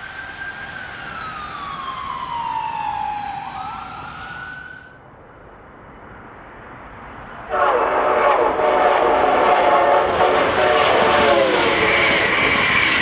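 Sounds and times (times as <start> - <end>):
loud multi-note chord horn: 7.5 - 11.8
train horn with falling pitch: 7.5 - 12.4.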